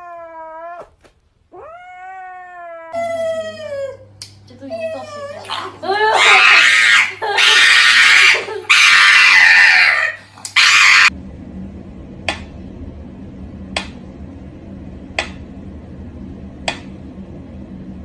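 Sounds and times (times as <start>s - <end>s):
low steady hum: 0.0s - 18.0s
loud shriek: 8.8s - 11.1s.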